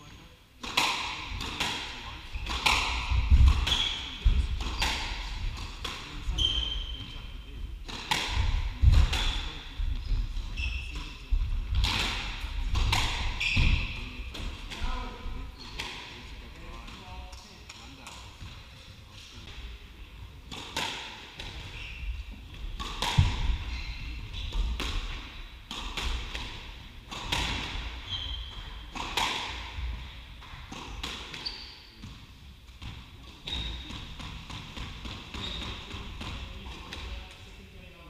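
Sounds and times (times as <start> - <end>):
squash ball struck by rackets: 0.6 - 6.1, 7.8 - 9.5, 11.3 - 15.0, 22.6 - 23.7, 24.5 - 28.0, 28.6 - 31.4
shoe squeaks on court floor: 6.3 - 7.3, 9.2 - 11.2, 13.2 - 14.1, 21.7 - 22.2, 23.6 - 24.6, 28.0 - 28.9, 31.3 - 32.0, 35.4 - 36.0.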